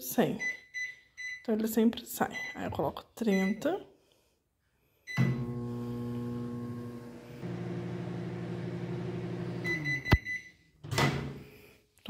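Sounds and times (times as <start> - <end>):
microwave oven humming: 5.2 - 10.2.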